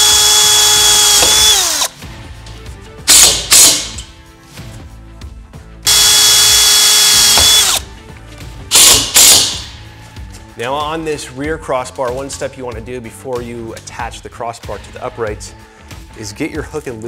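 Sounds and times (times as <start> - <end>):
cordless drill whining: 0.0 - 1.9, 3.1 - 3.9, 5.9 - 7.8.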